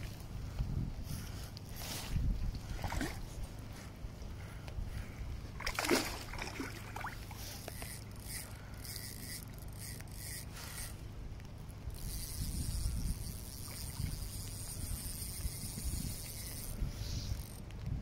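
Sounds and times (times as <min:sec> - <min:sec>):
wind rumbling on microphone: 0:00.0 - 0:08.3, 0:09.0 - 0:18.0
fish splashing in water: 0:05.6 - 0:07.5.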